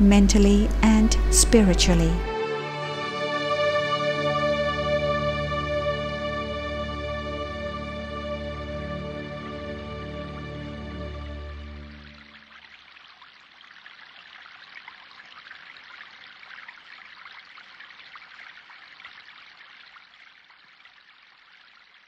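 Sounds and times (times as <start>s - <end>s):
water trickling: 11.4s - 22.0s.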